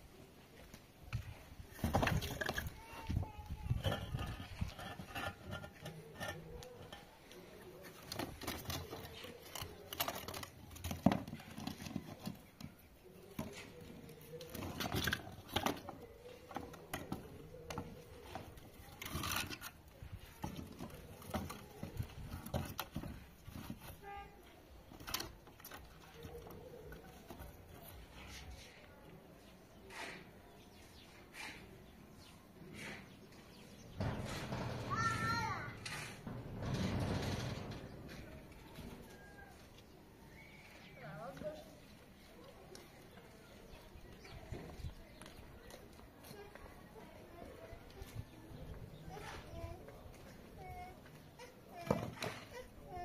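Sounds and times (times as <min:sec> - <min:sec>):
concrete blocks clattering: 0:01.7 - 0:24.0.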